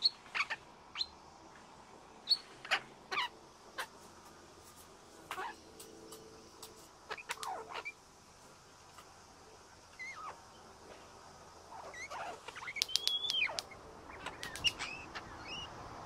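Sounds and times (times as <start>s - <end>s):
bird whistling calls: 11.9s - 15.7s
sharp clicks: 12.8s - 14.9s.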